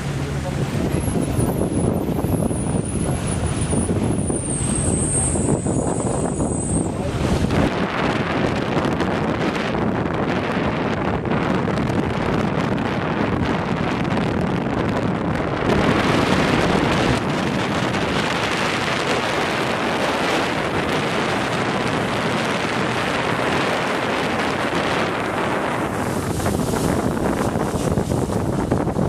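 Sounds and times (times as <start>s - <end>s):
motorboat engine: 0.0s - 29.0s
water noise: 0.0s - 29.0s
wind rushing over microphone: 0.0s - 29.0s.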